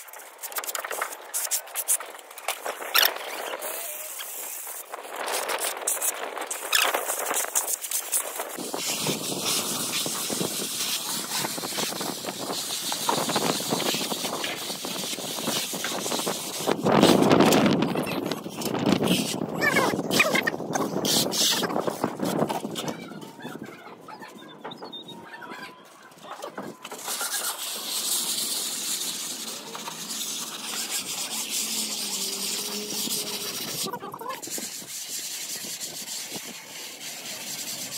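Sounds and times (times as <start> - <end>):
trowels scraping render on wall: 26.9 - 37.9
paint spraying hiss: 27.0 - 33.9.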